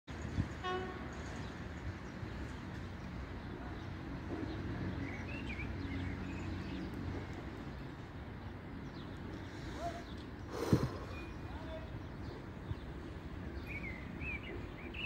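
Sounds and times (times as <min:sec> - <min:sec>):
distant diesel locomotive engine rumble: 0:00.1 - 0:15.0
bird chirps: 0:09.7 - 0:15.0.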